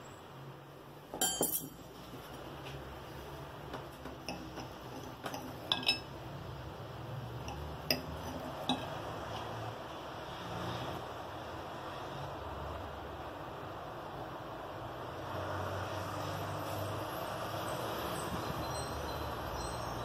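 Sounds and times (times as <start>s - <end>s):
cutlery clatter: 1.2s - 1.8s, 4.3s - 6.1s
cutlery clinking on ceramic plate: 1.2s - 1.8s, 4.2s - 6.1s.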